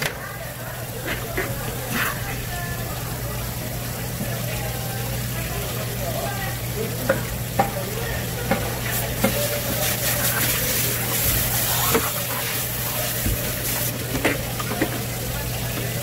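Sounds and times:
steady hiss: 8.9 - 14.1.

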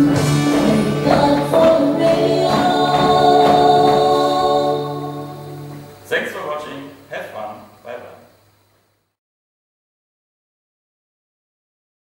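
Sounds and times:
country song with singing: 0.0 - 6.0.

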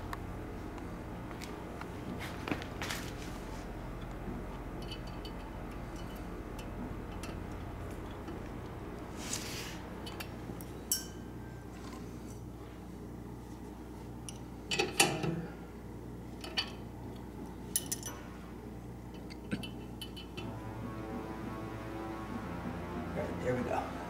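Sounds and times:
steady low hum: 0.0 - 24.0
clatter of clinks: 17.7 - 18.2.

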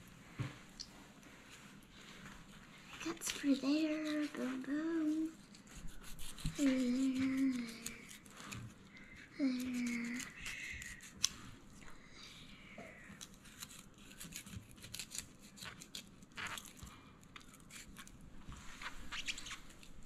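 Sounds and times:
person humming: 6.5 - 8.1, 9.4 - 11.1.

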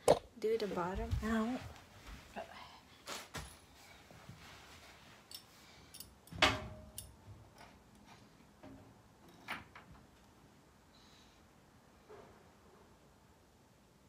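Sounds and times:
small metal hardware clinking: 5.3 - 7.8.

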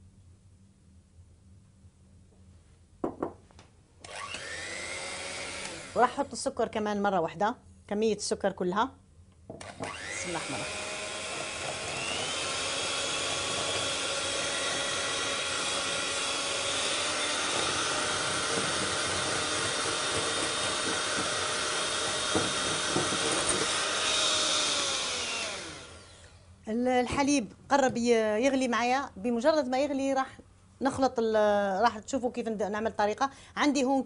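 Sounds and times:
electric mixer whisking in glass bowl: 4.1 - 6.3, 9.6 - 26.4.

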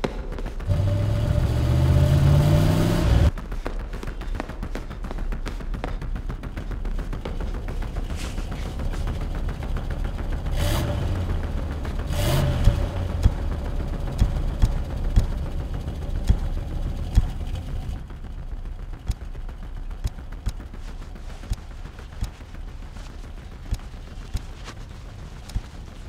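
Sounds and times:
pickup truck engine rumbling: 0.7 - 3.3, 7.8 - 26.0
sharp irregular cracks and knocks: 18.9 - 26.0.

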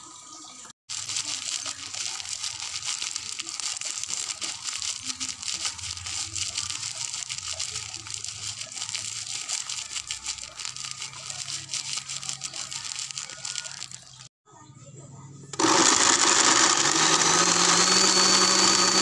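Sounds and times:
plastic bag crinkling: 0.9 - 14.3
salt grains pattering into jar: 0.9 - 14.3.

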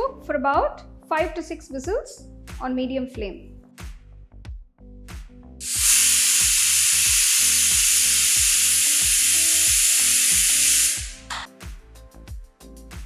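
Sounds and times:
pressure cooker whistling steam: 5.6 - 11.3.

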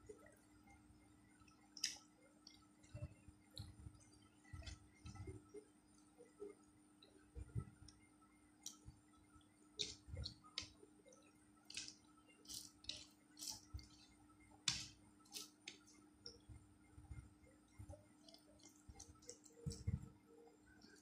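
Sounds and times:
fingers mixing rice squishing: 8.6 - 21.0.

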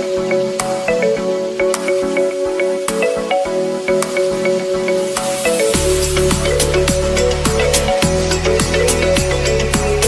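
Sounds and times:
electronic music with ticking beat: 0.0 - 10.0
deep bass line: 5.6 - 10.0.

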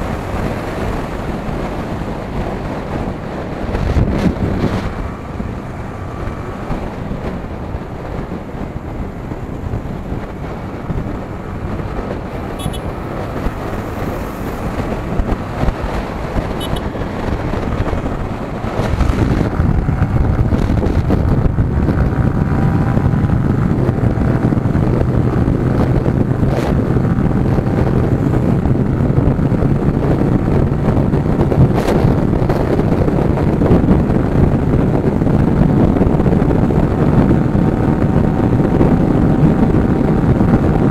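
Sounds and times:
motorcycle engine accelerating: 0.0 - 40.9
wind noise on microphone: 0.0 - 40.9.

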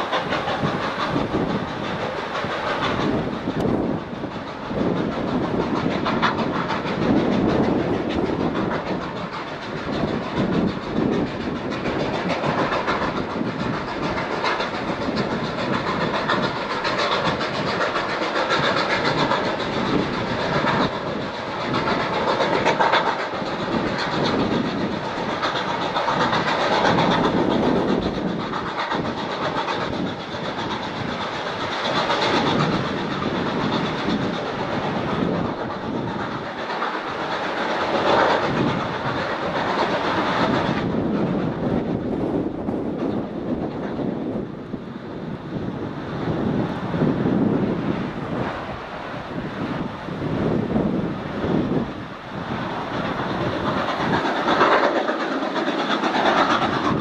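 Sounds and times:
steam locomotive running: 0.0 - 57.0.

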